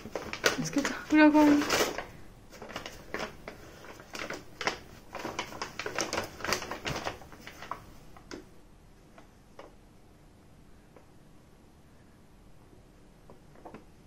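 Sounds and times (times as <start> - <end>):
paper bag crackling and rustling: 0.0 - 8.4.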